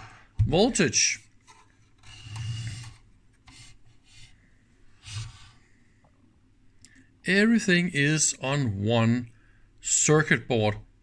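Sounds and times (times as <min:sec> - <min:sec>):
soft rubbing sounds: 0:01.0 - 0:06.0.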